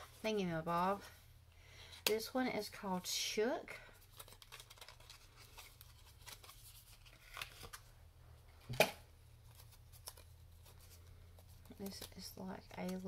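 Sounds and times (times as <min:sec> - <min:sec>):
packaging clicks and rustling: 0:04.0 - 0:07.9.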